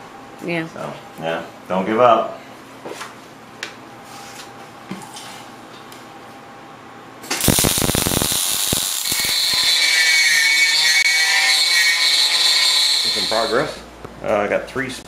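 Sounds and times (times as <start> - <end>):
welding arc crackling: 7.2 - 13.7
router high whine: 7.4 - 13.8.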